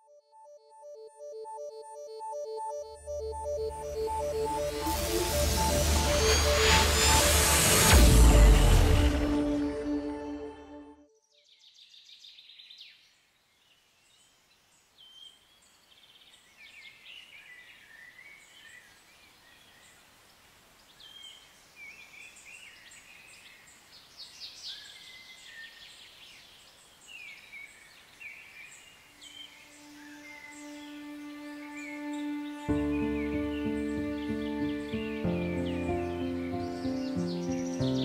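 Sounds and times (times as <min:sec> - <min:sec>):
low sustained music note: 0:02.0 - 0:10.9
faint background hiss: 0:12.7 - 0:32.7
birds chirping and trilling: 0:20.8 - 0:38.0.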